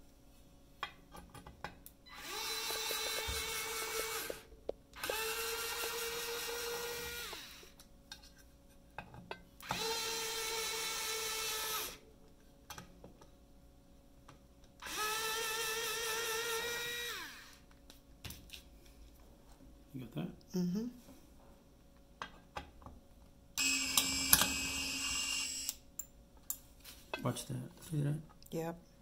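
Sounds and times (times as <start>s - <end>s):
electric drill whining: 2.1s - 7.8s, 9.6s - 12.0s, 14.8s - 17.6s, 23.6s - 25.8s.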